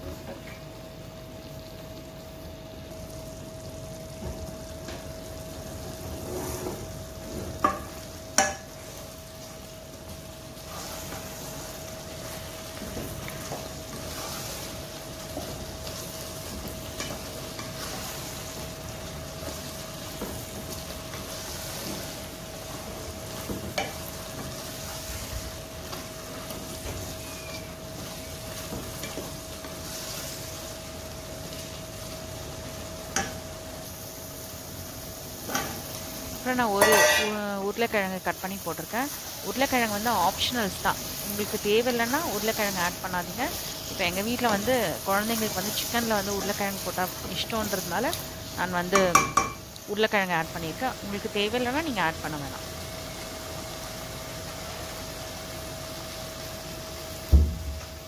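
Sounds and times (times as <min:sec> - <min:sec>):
curry sizzling in a pan: 0:00.0 - 0:58.0
wooden spatula stirring: 0:10.5 - 0:30.8.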